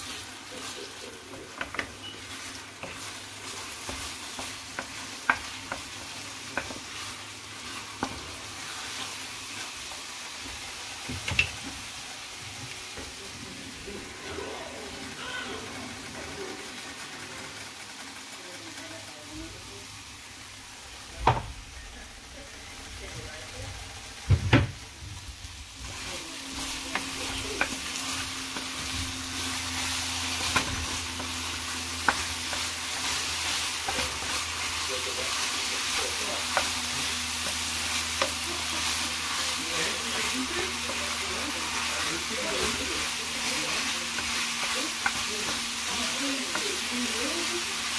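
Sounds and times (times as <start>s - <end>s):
wooden spoon scraping: 0.0s - 13.2s, 25.8s - 47.9s
food sizzling in skillet: 0.0s - 47.9s.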